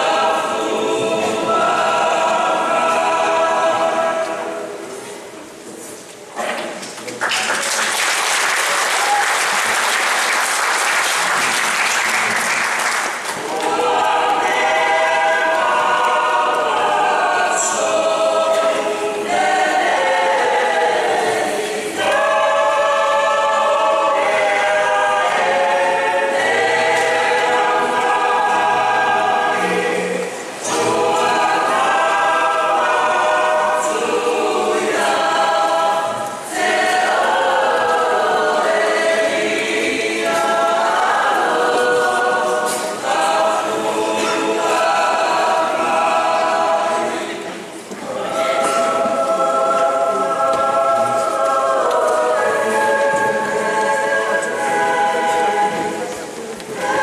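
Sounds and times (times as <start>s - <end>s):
choir singing unaccompanied: 0.0s - 5.6s, 7.9s - 57.0s
audience applause: 7.0s - 14.6s.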